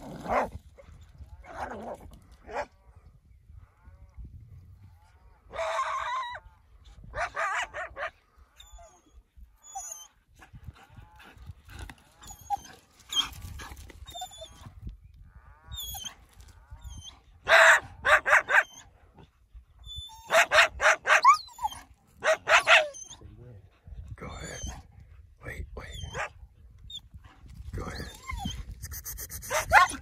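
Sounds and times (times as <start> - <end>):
coyotes and dogs barking: 0.0 - 3.0, 5.2 - 14.8, 15.7 - 30.0
dog whines: 28.0 - 30.0.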